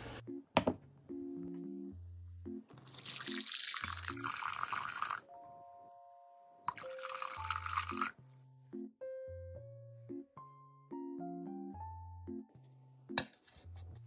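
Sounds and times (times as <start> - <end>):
light keyboard music: 0.0 - 14.0
water pouring into glass bowl: 2.8 - 5.3, 6.7 - 8.2.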